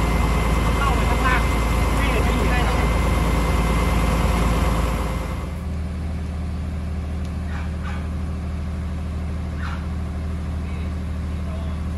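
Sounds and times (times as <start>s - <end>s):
loud engine running: 0.0s - 11.9s.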